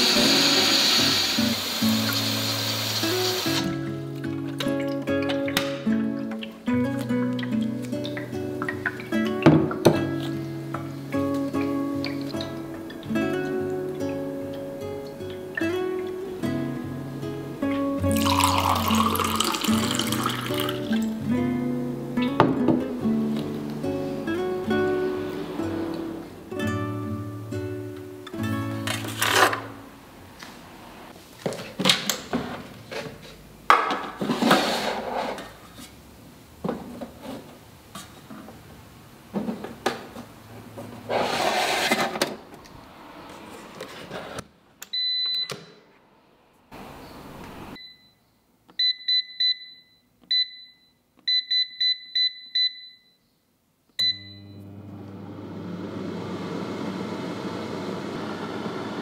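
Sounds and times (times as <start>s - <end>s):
metal tray clattering and scraping: 34.0s - 35.6s
short high oven beeps: 44.9s - 45.6s, 47.8s - 48.2s, 54.0s - 54.7s.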